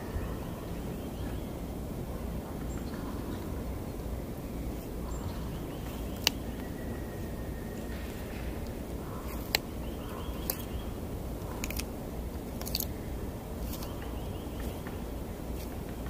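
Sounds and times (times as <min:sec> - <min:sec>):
low background rumble: 0:00.0 - 0:16.0
tortoise crunching vegetables: 0:04.3 - 0:16.0.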